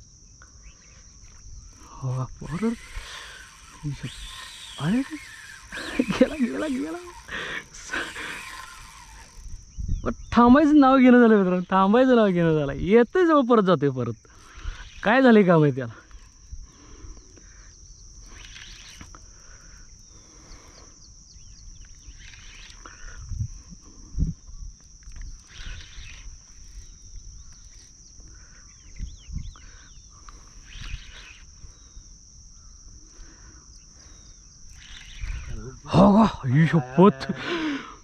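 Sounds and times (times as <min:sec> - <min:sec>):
high-pitched insect drone: 0:00.0 - 0:38.0
rustling of fishing rod handling: 0:08.3 - 0:09.4.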